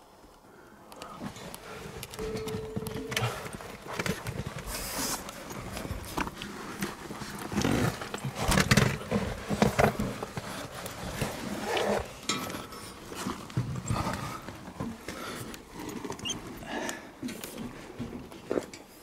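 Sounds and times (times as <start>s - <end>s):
hard breathing: 13.8s - 17.4s.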